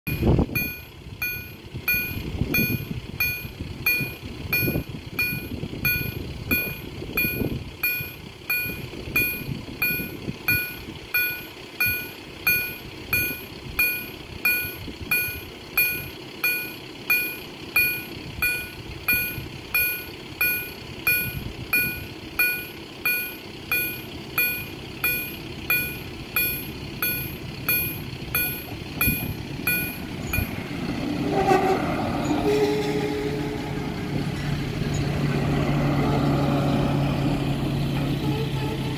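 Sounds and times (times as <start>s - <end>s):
level crossing warning bell: 0.1s - 30.6s.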